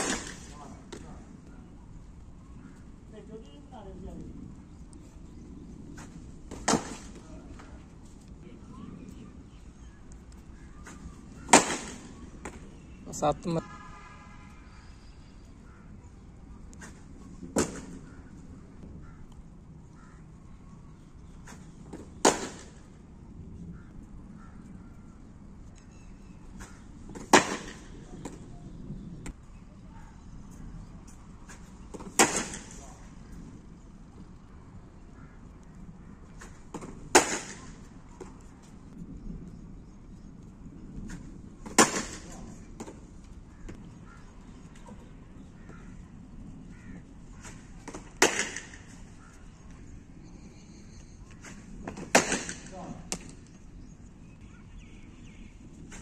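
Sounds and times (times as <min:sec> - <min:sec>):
cricket bat striking ball: 0:00.0 - 0:00.5, 0:06.5 - 0:07.2, 0:11.4 - 0:12.6, 0:21.9 - 0:22.8, 0:27.1 - 0:28.4, 0:31.9 - 0:32.8, 0:36.7 - 0:37.7, 0:41.6 - 0:43.0, 0:47.4 - 0:48.9, 0:51.9 - 0:53.3.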